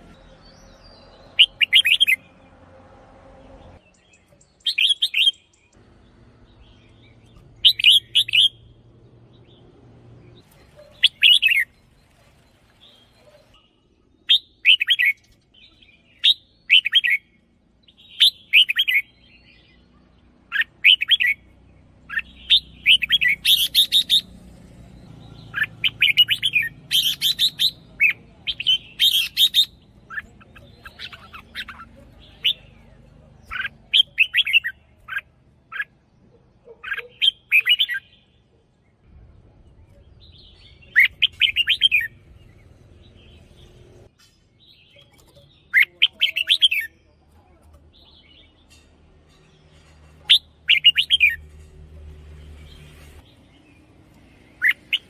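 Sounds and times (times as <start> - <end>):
bird singing short phrases: 6.4 - 12.0.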